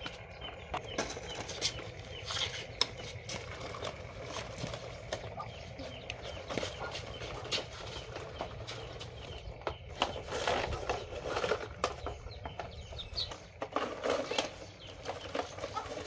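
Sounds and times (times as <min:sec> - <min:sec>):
chickens clucking: 0:00.0 - 0:16.0
toy truck clicking on concrete: 0:06.0 - 0:16.0.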